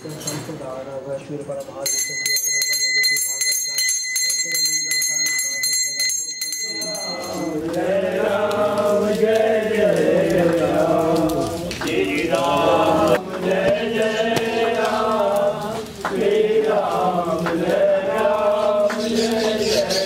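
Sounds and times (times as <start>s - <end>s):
person chanting: 6.7s - 20.0s.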